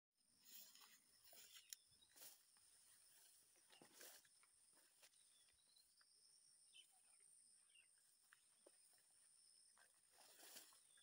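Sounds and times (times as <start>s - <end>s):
rustling of grass and leaves: 0.3s - 5.7s, 8.0s - 11.0s.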